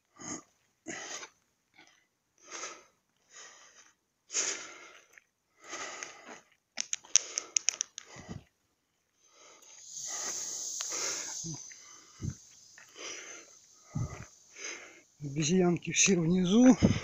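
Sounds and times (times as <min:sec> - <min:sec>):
person panting: 0:02.4 - 0:06.5, 0:09.3 - 0:15.2, 0:16.6 - 0:17.0.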